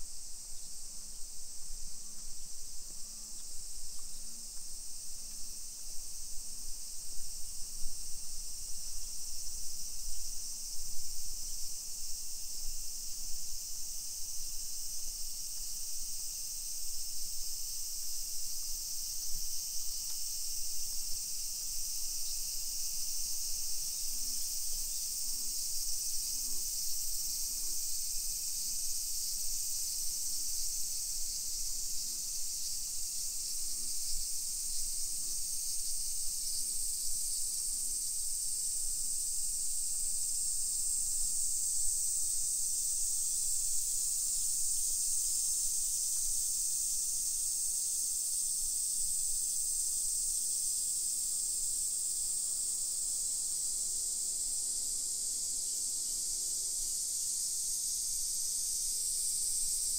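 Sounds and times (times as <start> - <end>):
cicadas droning: 0.0 - 59.9.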